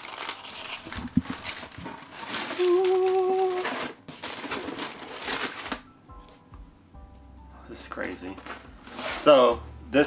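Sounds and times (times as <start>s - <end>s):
paper and cardboard rustling: 0.0s - 5.8s, 8.3s - 9.5s.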